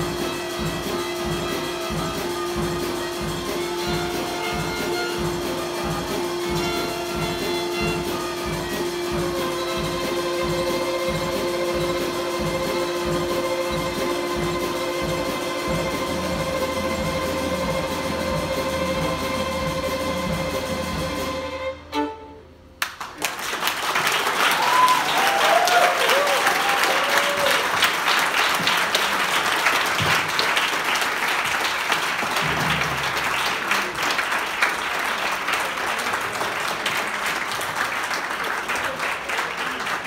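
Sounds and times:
violins holding a note: 0.0 - 22.6
audience applause: 22.8 - 40.0.

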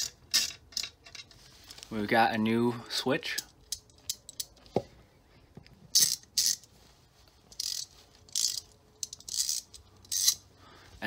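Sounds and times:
ratchet clicking: 6.0 - 6.6, 7.5 - 10.4.

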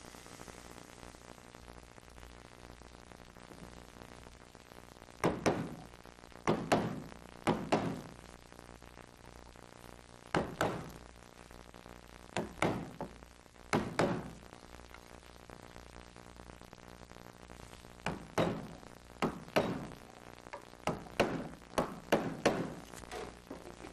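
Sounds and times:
mallet striking gouge handle: 18.1 - 20.0.

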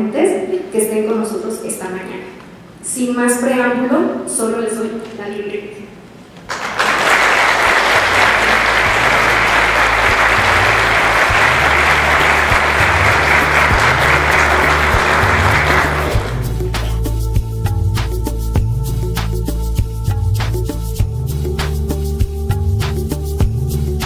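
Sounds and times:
audience applauding: 6.5 - 17.0
quiet music: 7.8 - 24.0.

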